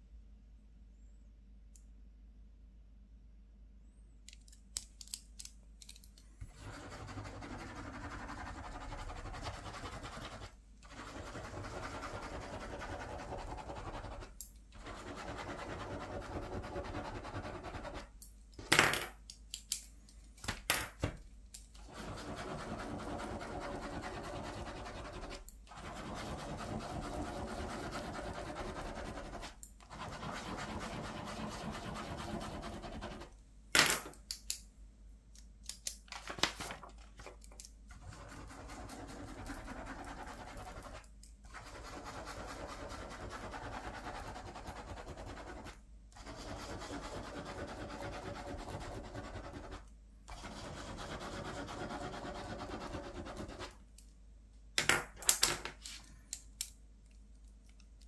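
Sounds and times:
ballpoint pen scribbling on paper: 6.5 - 18.1, 21.8 - 33.3, 37.9 - 53.8.

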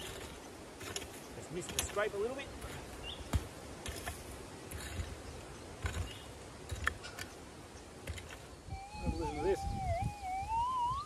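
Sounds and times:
pick scraping soil: 0.0 - 7.3.

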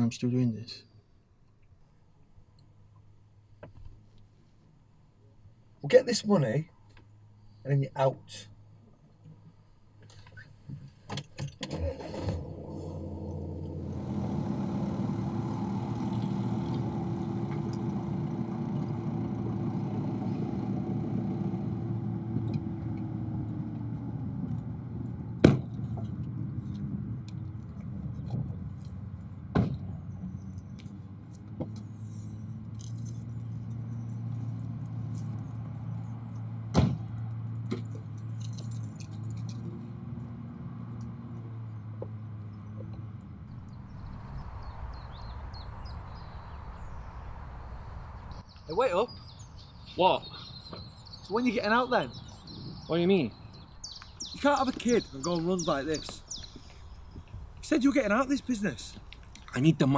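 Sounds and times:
car engine running: 12.0 - 48.4
low hum: 12.2 - 48.5
car doors slamming: 36.7 - 37.1.

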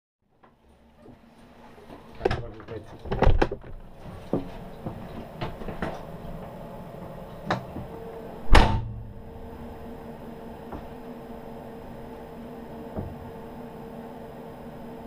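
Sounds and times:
steady hum: 0.4 - 15.0
door shutting with a thud: 2.2 - 3.8, 8.4 - 9.7, 12.9 - 13.4.

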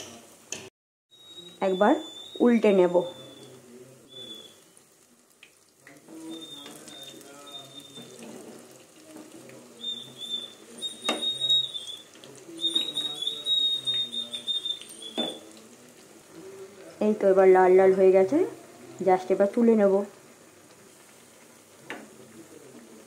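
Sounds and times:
fritters sizzling in oil: 0.0 - 23.0
high thin whistling tone: 1.2 - 4.8, 6.2 - 8.2, 9.8 - 15.6
spatula knocking on pan: 11.0 - 11.4, 15.2 - 15.4.

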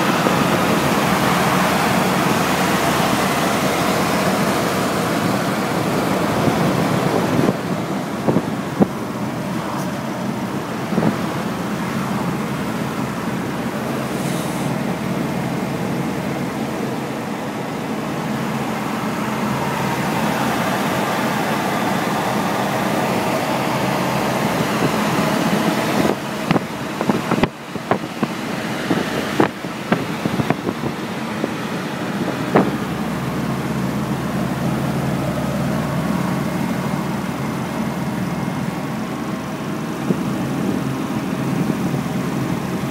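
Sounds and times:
road wind and engine noise: 0.0 - 42.9.

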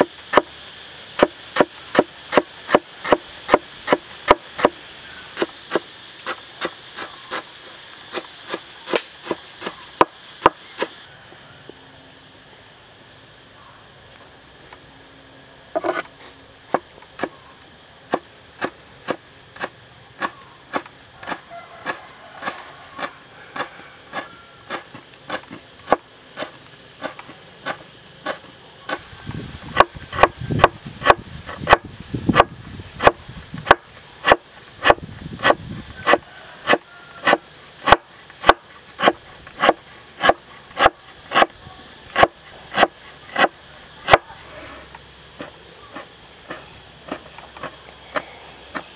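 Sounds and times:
cleaver chopping on wooden board: 18.1 - 29.0, 29.7 - 41.5, 42.2 - 43.5.

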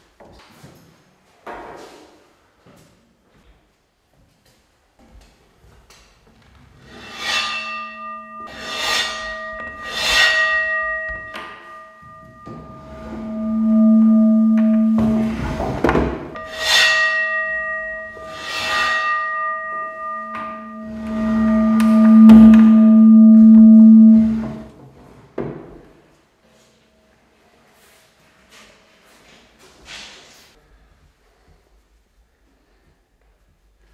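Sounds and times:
bow rasping: 6.8 - 15.8, 16.4 - 24.7
bowed bronze bowl ringing: 6.9 - 24.7
loud low hum: 7.4 - 9.8, 12.1 - 15.8, 19.5 - 24.7.

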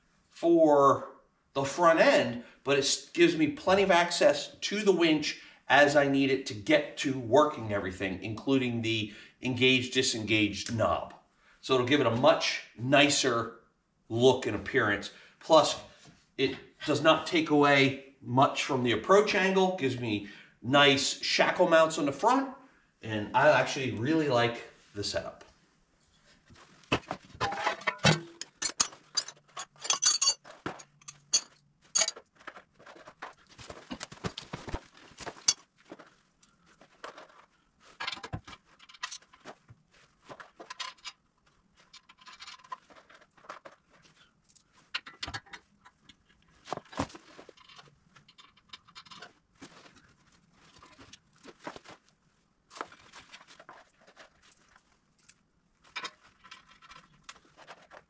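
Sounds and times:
metal brackets and bolts clinking: 27.4 - 33.1, 35.3 - 35.6, 36.9 - 39.5, 40.3 - 41.2, 41.8 - 43.8, 44.9 - 46.0, 47.3 - 49.4.

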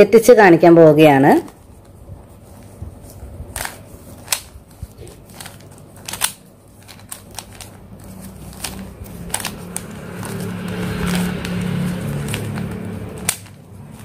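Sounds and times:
puzzle cube clicking: 3.5 - 10.8.

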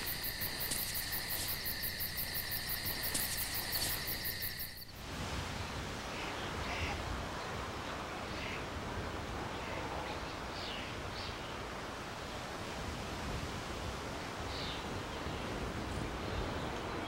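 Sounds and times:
crickets and insects trilling: 0.0 - 5.1
wind-like outdoor hiss: 0.0 - 17.0.

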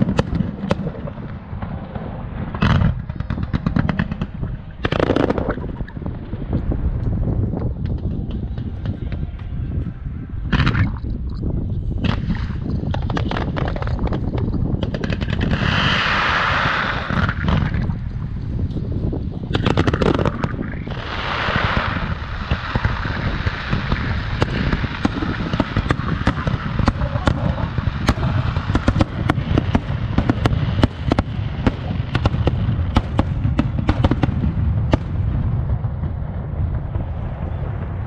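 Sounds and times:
fireworks bangs and booms: 0.0 - 9.5, 12.0 - 38.0
low rumble: 0.0 - 38.0.

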